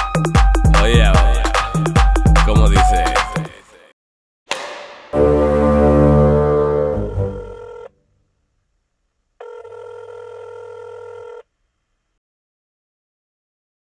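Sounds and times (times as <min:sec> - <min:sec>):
bass-heavy held chord: 0:05.2 - 0:07.7
electronic telephone tone: 0:07.3 - 0:07.9, 0:09.4 - 0:11.4.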